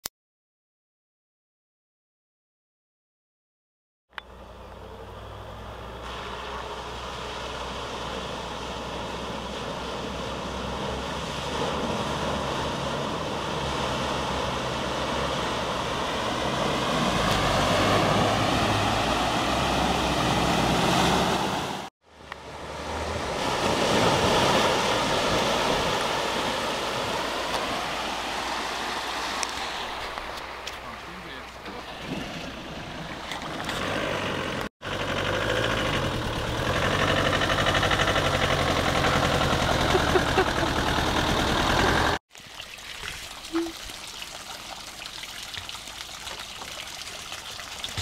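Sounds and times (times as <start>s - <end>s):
vehicle engine running: 4.1s - 20.8s, 30.8s - 42.2s
water rushing and splashing: 5.6s - 48.0s.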